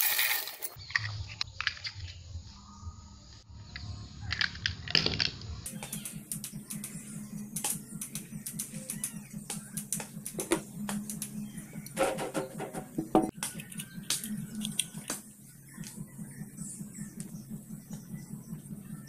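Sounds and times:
parts clicking and tapping: 4.3 - 15.2
low steady hum: 5.6 - 19.0.

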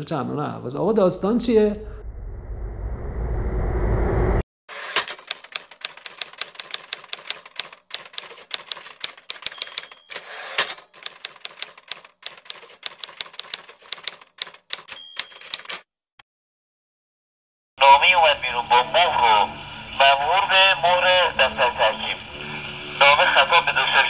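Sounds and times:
typewriter carriage sliding: 4.7 - 15.8
typewriter keys clacking: 5.0 - 15.8
typewriter bell ding: 9.0 - 11.3, 12.8 - 15.8.

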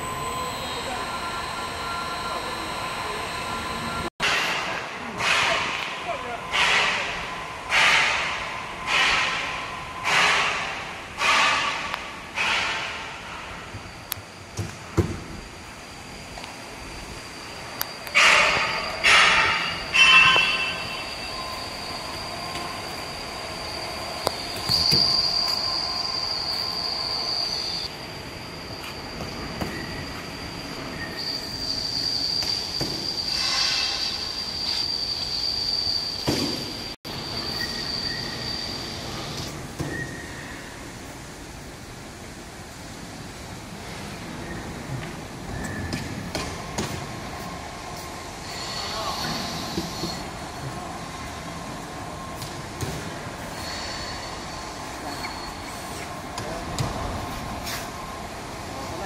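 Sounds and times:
machine high-pitched whine: 0.0 - 11.8, 12.4 - 40.8.

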